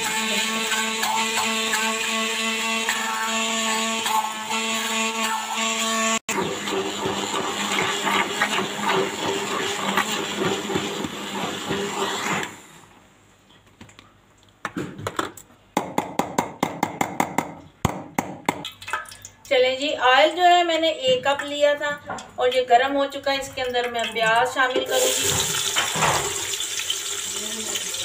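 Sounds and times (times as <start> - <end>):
stick blender running: 0.0 - 12.9.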